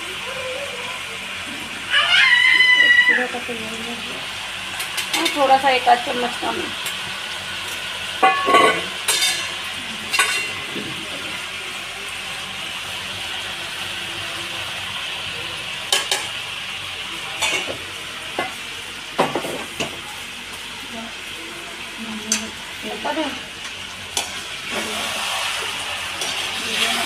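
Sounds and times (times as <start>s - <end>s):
chicken sizzling in a pan: 0.0s - 27.0s
spoon scraping and knocking pan: 8.2s - 10.9s.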